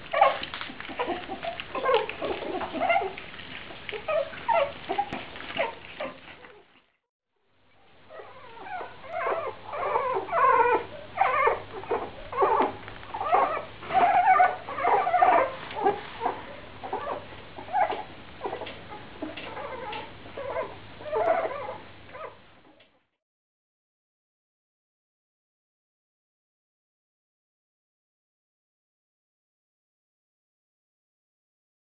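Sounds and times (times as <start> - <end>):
puppies whimpering and squeaking: 0.0 - 7.0, 8.1 - 23.1.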